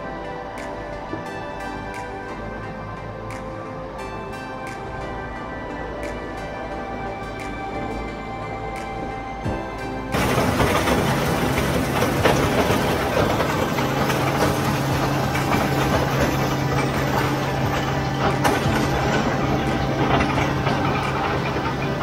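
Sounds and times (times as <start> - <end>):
combine harvester clattering: 8.8 - 22.0.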